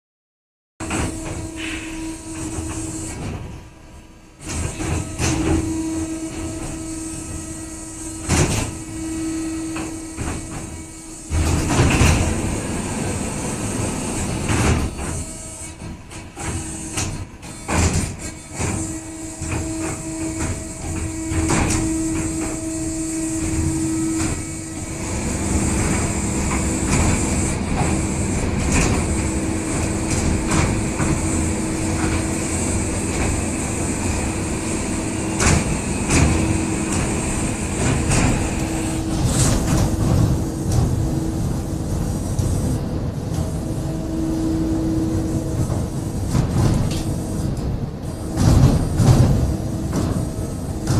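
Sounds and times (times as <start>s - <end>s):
mechanical knocks and clatters: 2.4s - 3.6s, 4.4s - 7.0s, 8.1s - 12.9s, 14.1s - 43.6s, 44.9s - 50.9s
motion platform humming: 19.4s - 50.9s.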